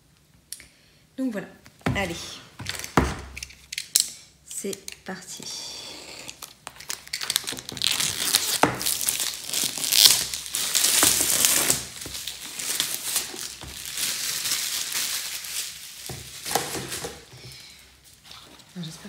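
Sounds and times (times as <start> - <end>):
plastic wrap crinkling: 2.0 - 4.0, 6.2 - 19.0.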